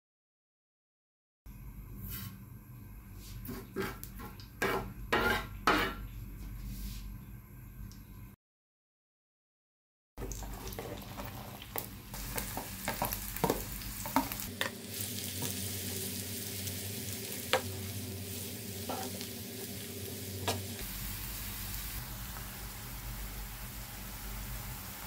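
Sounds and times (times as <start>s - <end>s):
onions sizzling in hot oil: 10.2s - 25.0s.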